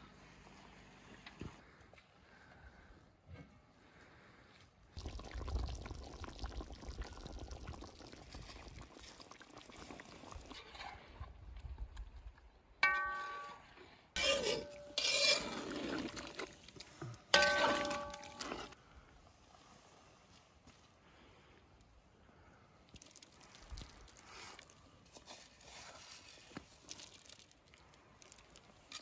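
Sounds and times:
hissing from hot pot: 0:05.0 - 0:10.6.

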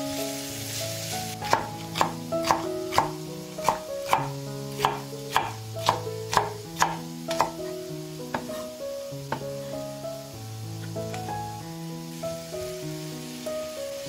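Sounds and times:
background music: 0:00.0 - 0:14.0
knife chopping on cutting board: 0:01.5 - 0:07.7, 0:08.3 - 0:08.7.

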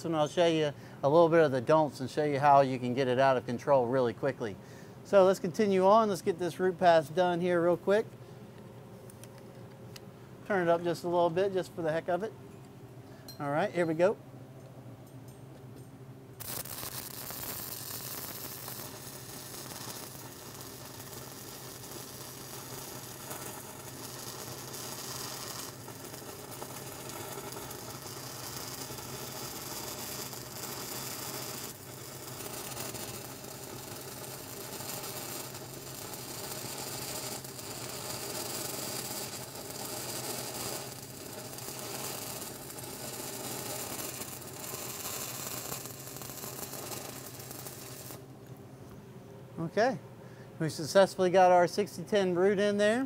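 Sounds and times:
welding arc crackling: 0:16.4 - 0:48.6.

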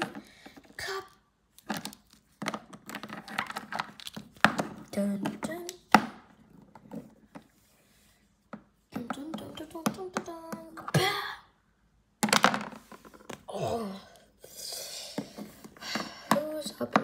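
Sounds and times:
child speaking: 0:00.8 - 0:01.2, 0:04.8 - 0:05.9, 0:08.9 - 0:11.5, 0:16.2 - 0:17.0.

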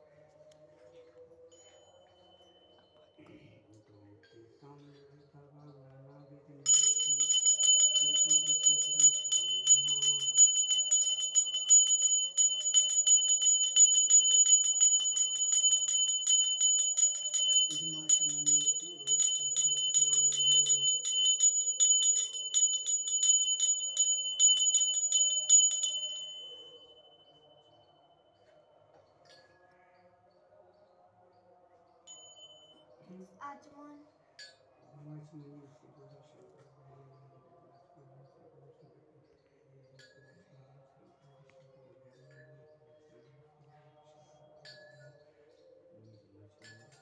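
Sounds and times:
faint voices: 0:00.0 - 0:32.0
hand bell rung rapidly: 0:06.7 - 0:27.0, 0:32.1 - 0:32.8.

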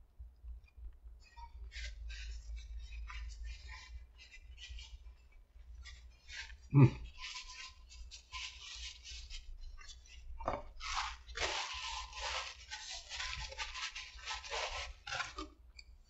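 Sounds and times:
paper wrapper crinkling: 0:10.8 - 0:15.5.

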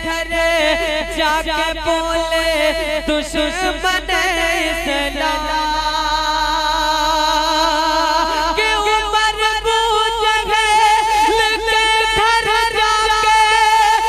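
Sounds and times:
man singing into a microphone: 0:00.0 - 0:14.0.

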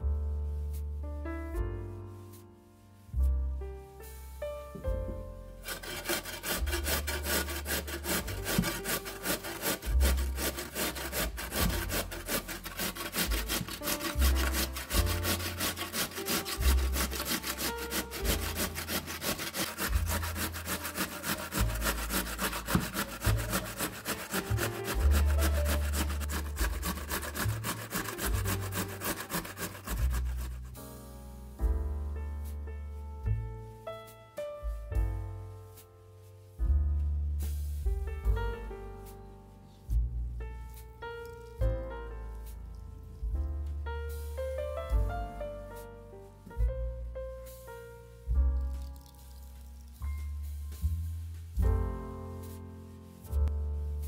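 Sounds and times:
soft background music: 0:00.0 - 0:54.0
potato scraping on metal grater: 0:05.6 - 0:30.9.

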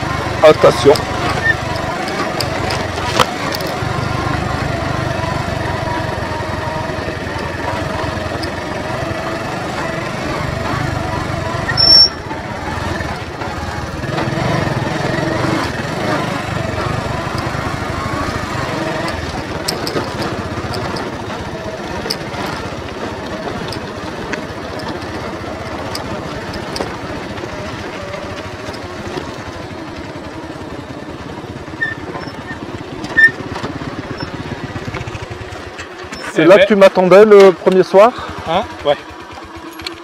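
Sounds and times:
knocks and rattles: 0:00.0 - 0:04.2, 0:13.0 - 0:29.8
motorcycle engine running: 0:00.0 - 0:40.0.

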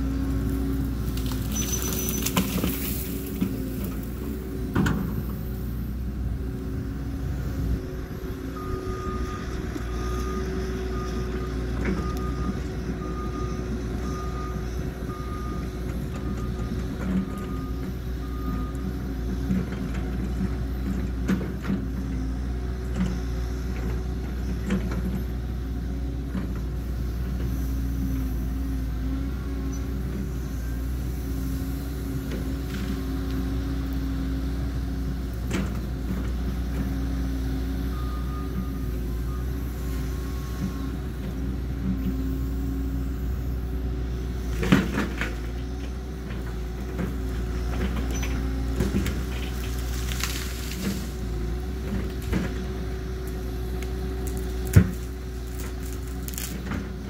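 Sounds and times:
excavator diesel engine running: 0:00.0 - 0:57.0
bucket cracking brush and trees: 0:00.9 - 0:04.2, 0:48.8 - 0:52.6, 0:53.8 - 0:56.9.

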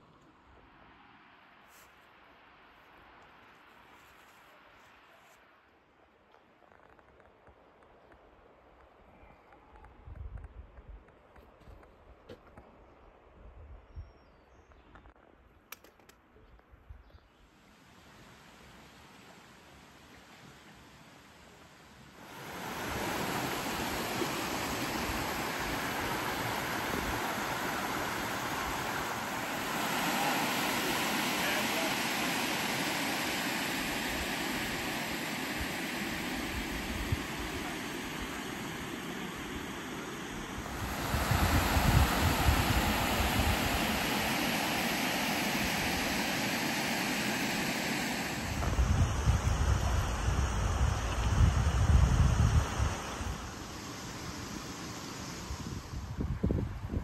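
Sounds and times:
creek rushing over rocks: 0:22.2 - 0:50.0
wind buffeting microphone: 0:40.4 - 0:44.2, 0:48.5 - 0:53.5, 0:55.5 - 0:57.0.

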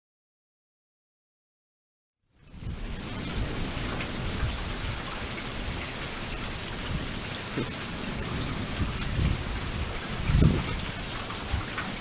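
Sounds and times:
heavy rain pouring: 0:02.4 - 0:12.0
low thunder rumbling: 0:02.4 - 0:12.0.

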